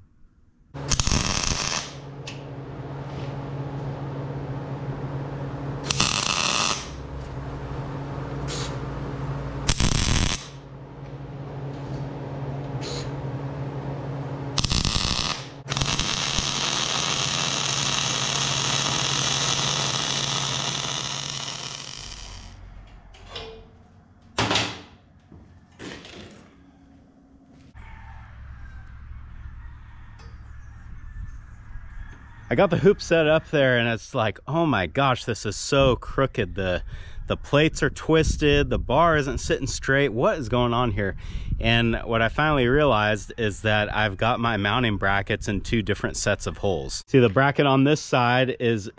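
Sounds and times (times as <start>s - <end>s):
steady low hum: 0.0s - 47.4s
welding arc crackle: 0.8s - 2.2s, 5.8s - 7.1s, 8.5s - 8.8s, 9.6s - 10.7s, 14.5s - 22.6s.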